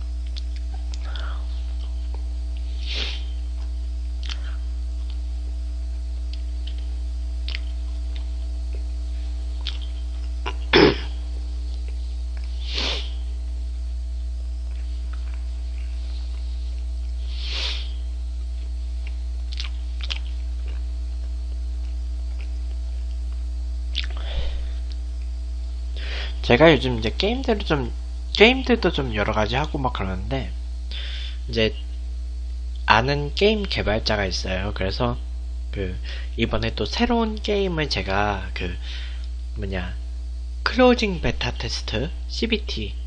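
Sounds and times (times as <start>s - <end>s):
electrical mains hum: 0.0s - 43.0s
sniffing breaths: 2.6s - 3.4s, 12.5s - 13.4s, 15.7s - 18.2s, 25.9s - 26.4s, 30.9s - 31.4s
mouth smack: 6.3s - 7.8s, 9.6s - 11.1s, 23.9s - 25.0s.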